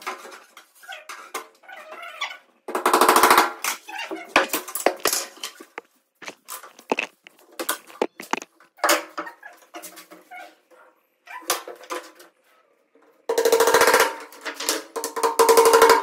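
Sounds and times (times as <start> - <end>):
plywood strips knocking and clattering: 4.4 - 8.5.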